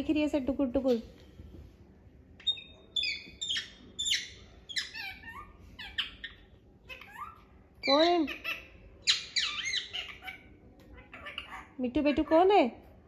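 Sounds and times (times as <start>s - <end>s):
parakeet chattering: 2.4s - 12.3s.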